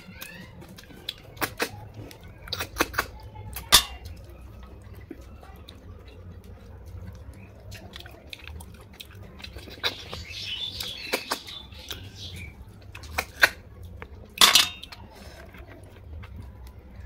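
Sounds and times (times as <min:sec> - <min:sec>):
slurping snail meat: 0:14.8 - 0:17.0.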